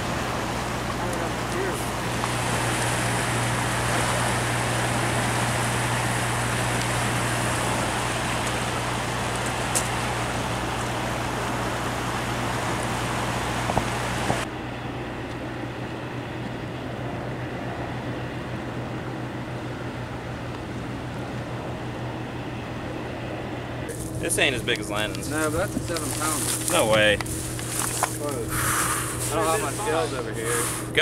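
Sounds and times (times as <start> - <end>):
churning water rushing: 0.0 - 14.5, 23.9 - 31.0
low steady hum: 0.0 - 31.0.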